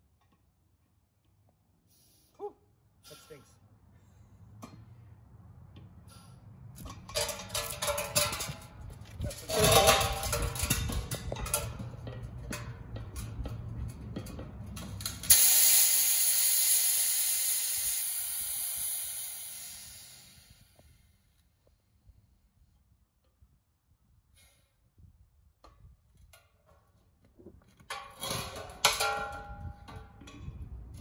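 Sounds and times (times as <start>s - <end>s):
valve sputtering and spitting: 15.3s - 20.5s
gas hissing from keg: 15.3s - 20.6s.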